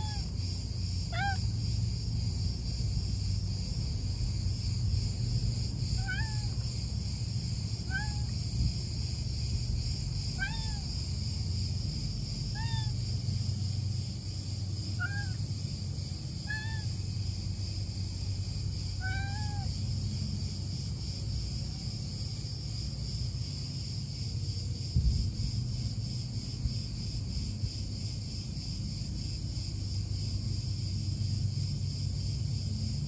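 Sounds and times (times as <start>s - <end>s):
cat meowing: 0.0s - 0.3s, 1.1s - 1.4s, 6.0s - 6.6s, 7.8s - 8.3s, 10.3s - 10.9s, 12.5s - 13.0s, 15.0s - 15.4s, 16.4s - 17.0s, 19.0s - 19.7s.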